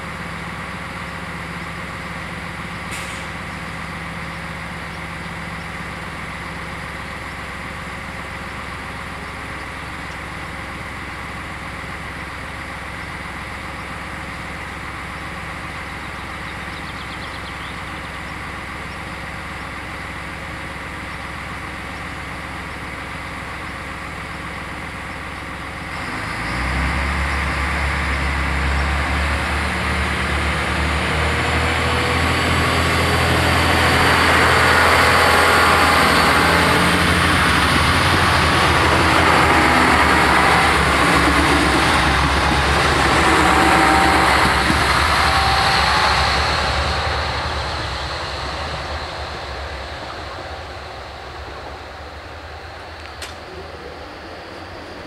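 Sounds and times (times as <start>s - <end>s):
diesel railcar engine droning: 0.0s - 55.0s
wheels on rails: 30.6s - 55.0s.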